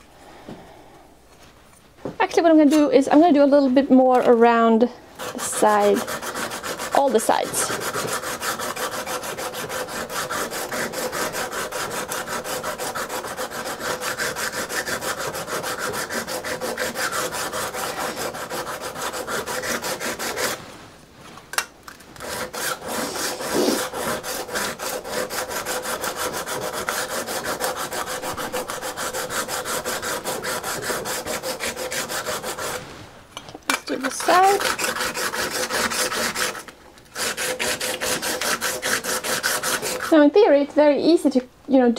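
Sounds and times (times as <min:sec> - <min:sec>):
scraper rubbing on sharpening stone: 0:05.2 - 0:20.6, 0:22.2 - 0:32.9, 0:34.0 - 0:40.2.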